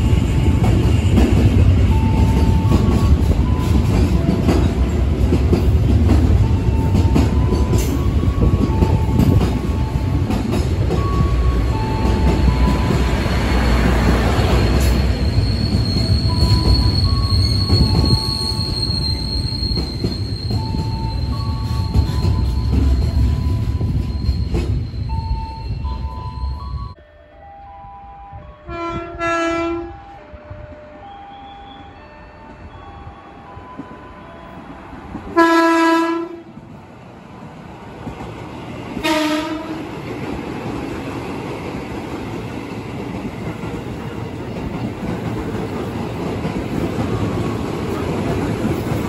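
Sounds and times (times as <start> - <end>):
train wheels rumbling on rail: 0.0 - 27.0, 31.9 - 49.0
wheels squealing: 11.0 - 27.0.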